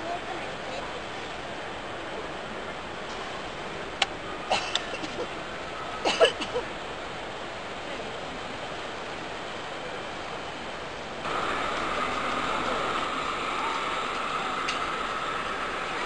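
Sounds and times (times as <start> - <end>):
crowd hubbub in a hall: 11.2 - 16.0.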